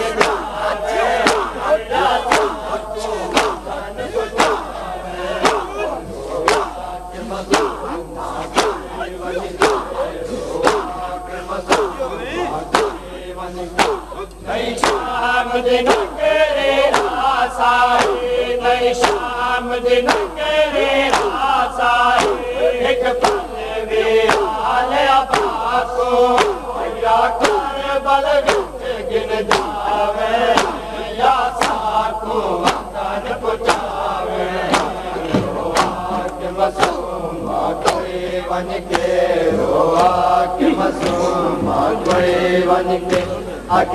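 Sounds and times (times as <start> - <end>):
men chanting: 0.0 - 43.9
hands slapping chests: 0.2 - 13.1, 13.8 - 15.1, 15.8 - 16.2, 16.8 - 17.3, 18.0 - 18.3, 19.0 - 19.3, 20.0 - 20.4, 21.0 - 21.5, 22.2 - 22.5, 23.2 - 23.5, 24.2 - 24.6, 25.3 - 25.6, 26.3 - 26.6, 27.4 - 27.7, 28.4 - 28.8, 29.5 - 29.8, 30.5 - 30.8, 31.6 - 31.9, 32.6 - 32.9, 33.6 - 34.0, 34.7 - 37.1, 37.8 - 38.1, 38.9 - 42.4, 43.1 - 43.9.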